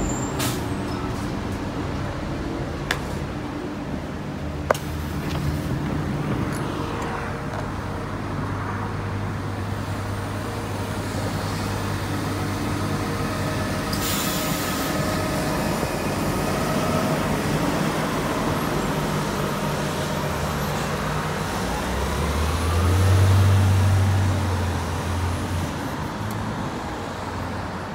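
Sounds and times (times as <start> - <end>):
bus engine running: 0.0 - 27.9
air hiss: 13.9 - 15.1.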